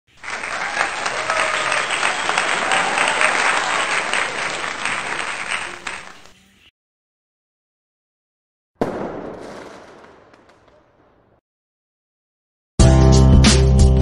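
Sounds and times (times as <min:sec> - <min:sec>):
crowd applauding: 0:00.1 - 0:06.3.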